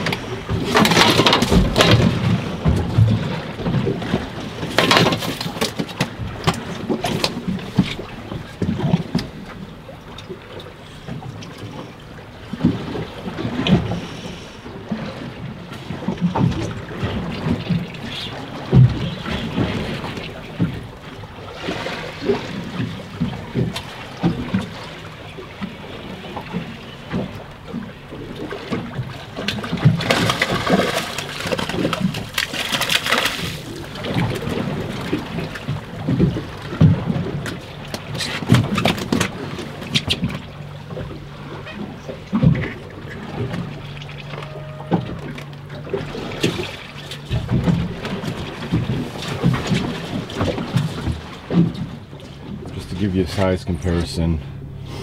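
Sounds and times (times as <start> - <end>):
sea slapping against boat hull: 0.0 - 14.0, 15.0 - 54.2
fish splashing in water: 28.3 - 41.1.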